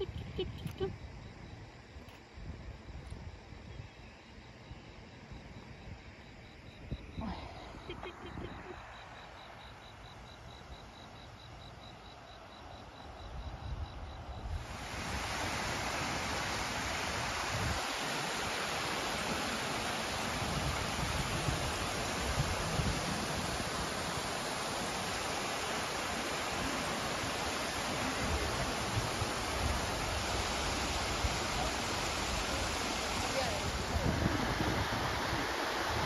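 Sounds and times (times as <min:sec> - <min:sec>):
river water rushing over stones: 0:14.6 - 0:36.0.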